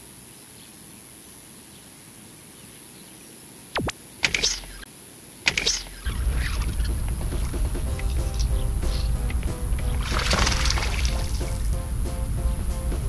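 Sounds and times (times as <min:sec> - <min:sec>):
sharp click: 0:03.8 - 0:04.9, 0:05.5 - 0:06.2
water splashes: 0:05.7 - 0:12.3
low rumble: 0:06.0 - 0:13.0.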